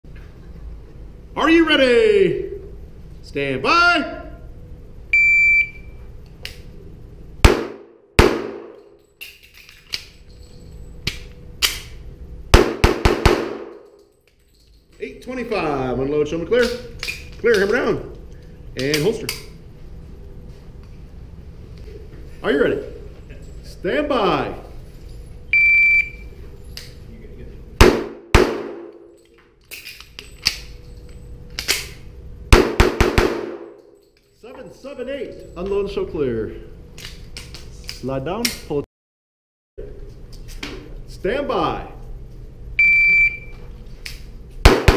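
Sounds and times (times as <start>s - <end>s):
shot timer beep: 5.2s - 5.9s, 25.6s - 26.3s, 42.8s - 43.5s
pistol shots ringing indoors: 7.4s - 9.4s, 11.0s - 14.2s, 27.8s - 29.3s, 31.6s - 34.0s, 44.6s - 44.9s.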